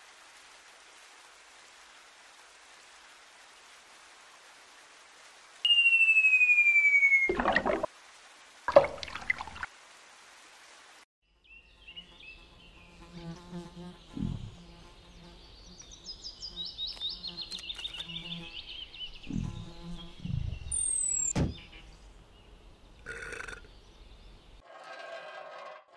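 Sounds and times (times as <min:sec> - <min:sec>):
high chirping: 0:05.7 - 0:07.4, 0:19.2 - 0:21.9
cartoon bee buzzing: 0:19.3 - 0:20.2
low thud: 0:21.3 - 0:21.6.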